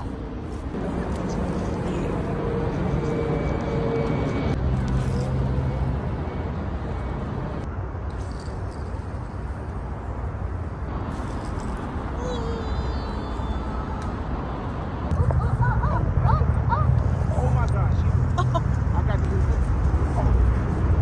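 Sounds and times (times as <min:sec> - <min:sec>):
outdoor background noise: 0:00.0 - 0:21.0.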